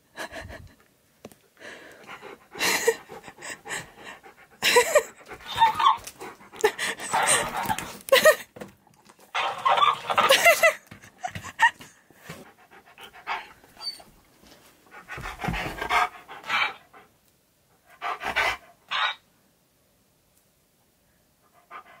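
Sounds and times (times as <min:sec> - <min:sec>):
dog panting: 0:01.6 - 0:08.0, 0:10.2 - 0:14.2, 0:14.8 - 0:17.2, 0:17.8 - 0:18.8, 0:21.5 - 0:22.0.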